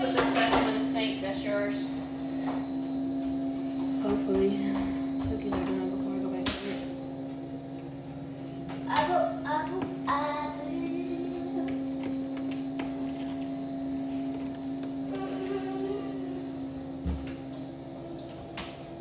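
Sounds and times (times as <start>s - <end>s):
steady low hum: 0.0s - 19.0s
young child's voice: 8.8s - 12.0s, 15.1s - 16.5s.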